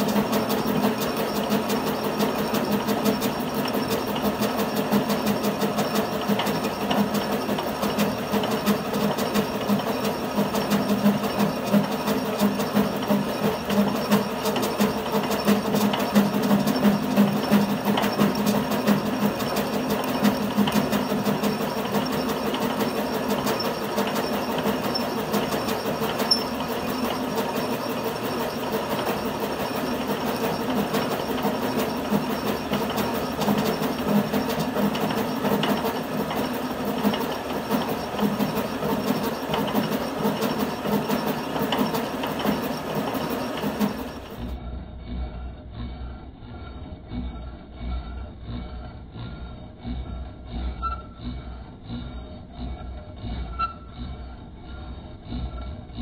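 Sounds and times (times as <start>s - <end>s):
lathe humming: 0.0s - 44.6s.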